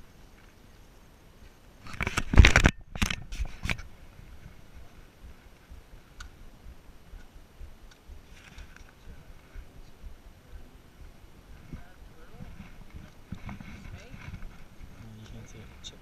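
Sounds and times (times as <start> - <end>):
rubbing against microphone: 1.8 - 6.2, 8.1 - 10.6, 11.4 - 16.0.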